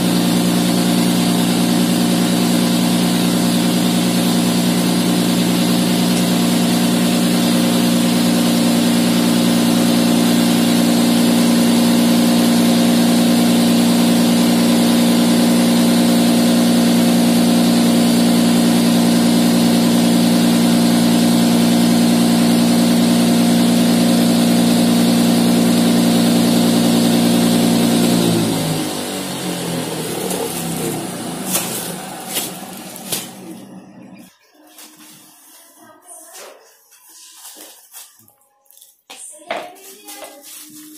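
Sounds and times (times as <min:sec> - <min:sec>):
cotton candy machine humming: 0:00.0 - 0:35.4.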